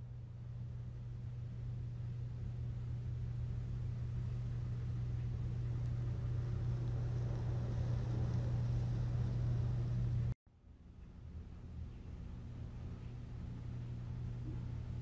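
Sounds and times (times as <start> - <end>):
low hum: 0.0 - 15.0
faint hiss: 3.3 - 10.4.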